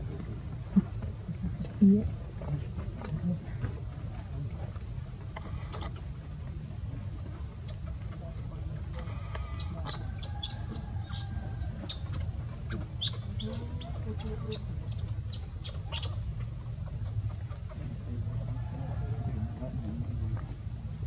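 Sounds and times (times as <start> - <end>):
animal chirps and squeaks: 9.6 - 12.3, 13.0 - 16.2.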